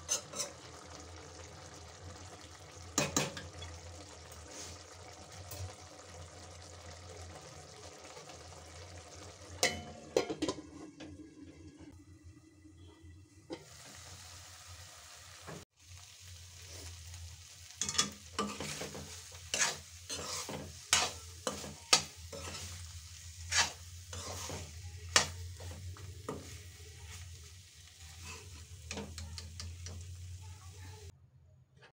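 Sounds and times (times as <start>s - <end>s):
metal ladle scraping a pan: 0.0s - 1.0s, 17.8s - 30.1s
food frying in a pan: 0.0s - 31.1s.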